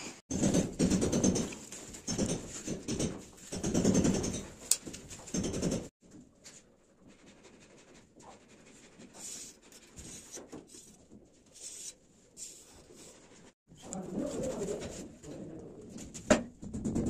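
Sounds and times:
tool scratching a ceiling: 0.0s - 15.4s.

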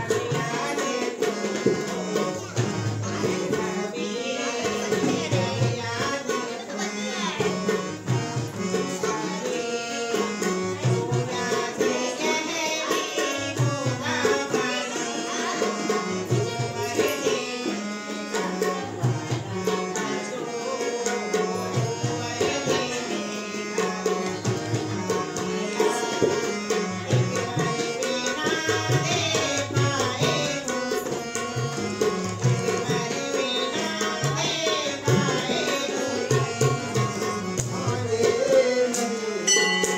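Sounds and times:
harmonium chords: 0.0s - 39.9s
person singing: 0.0s - 39.9s
tabla strokes: 24.2s - 39.9s.

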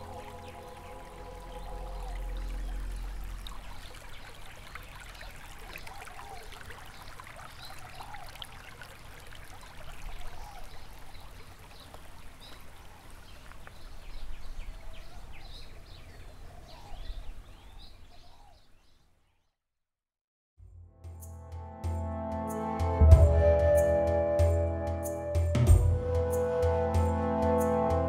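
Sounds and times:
trickling water: 0.0s - 15.4s.

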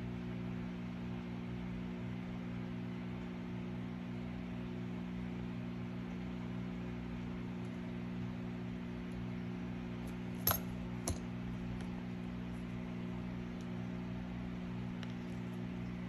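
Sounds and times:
low electrical hum: 0.0s - 16.0s
objects set down clicking: 10.4s - 11.3s.

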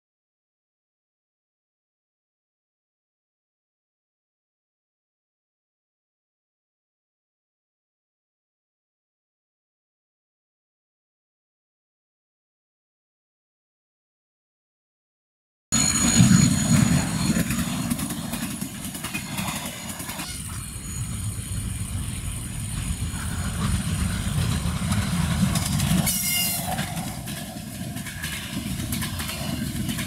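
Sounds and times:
high-pitched train screech: 15.8s - 27.4s
train rumbling on track: 15.8s - 30.0s.

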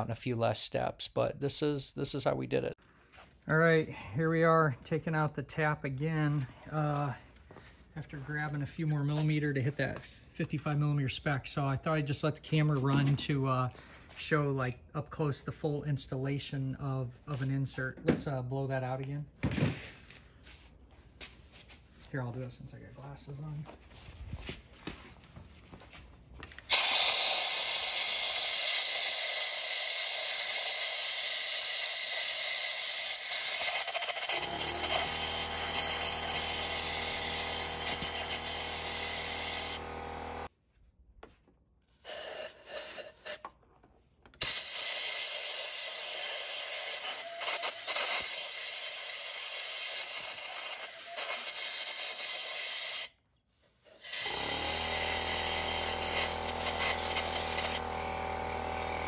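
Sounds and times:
compressed air gun hissing: 26.7s - 32.4s, 33.0s - 35.2s, 42.0s - 43.4s, 44.4s - 53.0s, 55.8s - 57.8s
aerosol spray bursts: 26.7s - 36.6s, 42.0s - 43.4s, 44.4s - 53.1s, 55.8s - 57.9s.

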